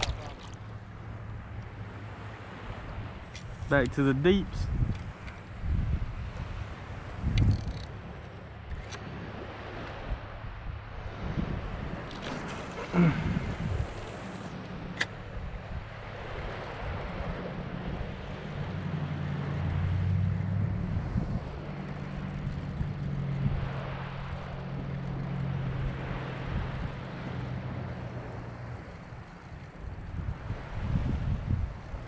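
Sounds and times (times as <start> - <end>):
distant engine hum: 0.0 - 32.0.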